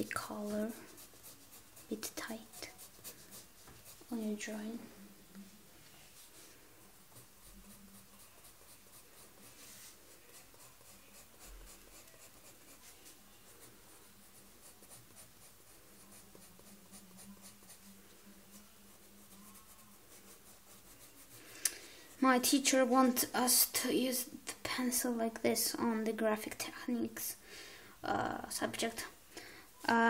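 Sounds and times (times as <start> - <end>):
pencil scratching on paper: 0.0 - 4.7, 7.1 - 23.6.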